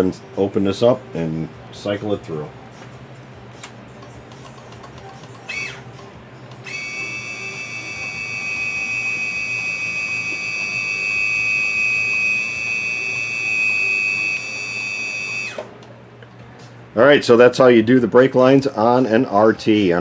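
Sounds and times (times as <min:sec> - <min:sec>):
brake pump whining: 0:04.0 - 0:15.8.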